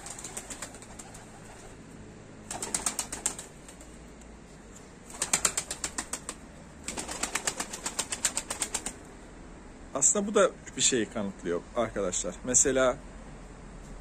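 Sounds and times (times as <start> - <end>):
pigeon wings flapping: 0.0 - 1.8, 2.4 - 4.0, 5.1 - 9.0.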